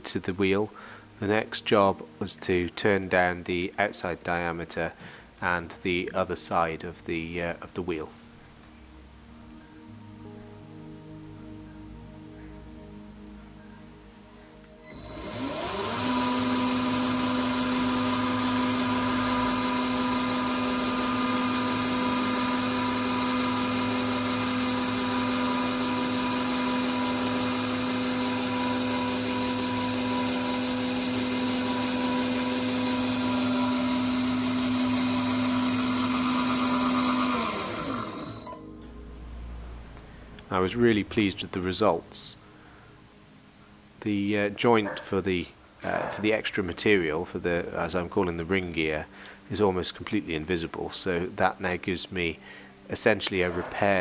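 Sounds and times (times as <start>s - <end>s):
cutting tool turning metal: 14.8s - 38.6s
lathe motor whine: 14.8s - 38.6s.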